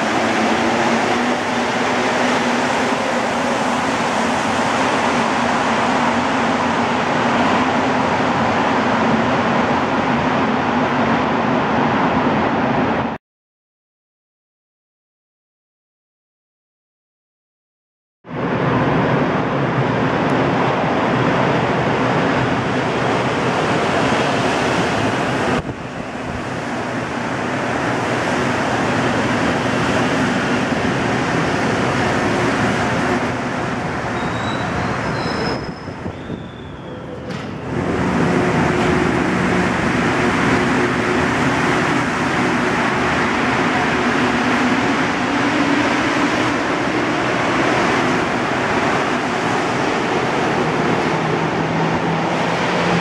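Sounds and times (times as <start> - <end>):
metro train rushing: 0.0 - 13.2, 18.3 - 53.0.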